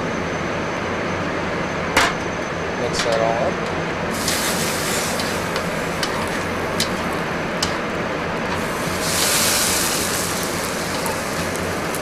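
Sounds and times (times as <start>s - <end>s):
gas burner rushing: 3.0s - 12.0s
sauce bubbling in pan: 8.6s - 12.0s.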